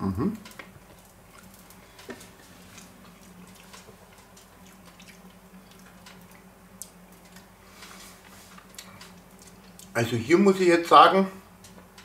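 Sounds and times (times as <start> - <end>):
low electrical hum: 0.0 - 12.0
mouth chewing: 1.3 - 7.5, 8.5 - 10.0.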